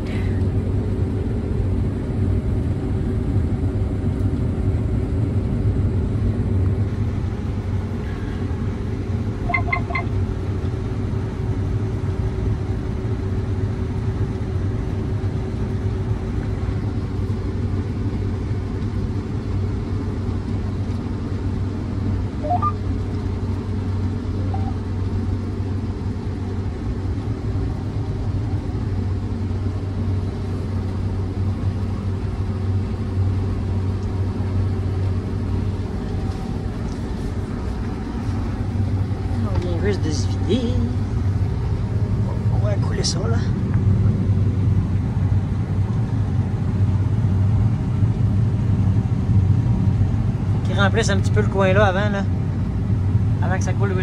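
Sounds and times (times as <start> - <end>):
combine harvester running: 0.0 - 54.0
short beeps: 9.5 - 10.1, 22.4 - 22.8, 24.5 - 24.8.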